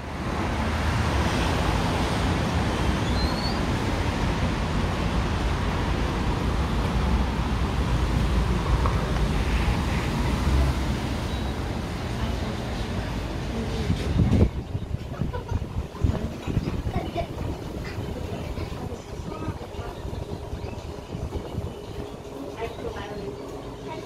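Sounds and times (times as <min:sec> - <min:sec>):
rumble of passing cars: 0:00.0 - 0:23.9.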